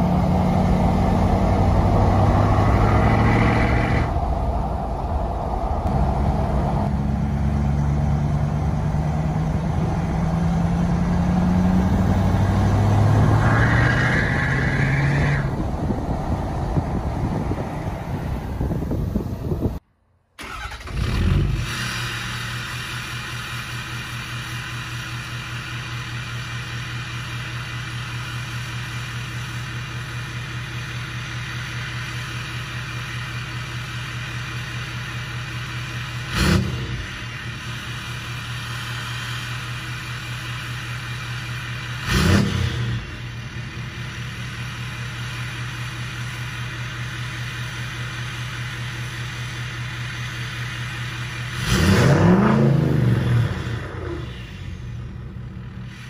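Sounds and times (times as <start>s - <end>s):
engine throttle blips: 0.0s - 19.8s
diesel truck engine idling: 15.5s - 19.8s, 43.0s - 51.6s.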